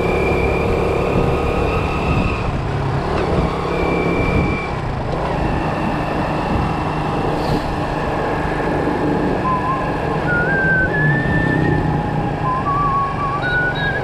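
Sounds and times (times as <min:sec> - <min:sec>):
motorbike engine: 0:00.0 - 0:14.0
wind on microphone: 0:00.5 - 0:02.6, 0:05.5 - 0:09.4.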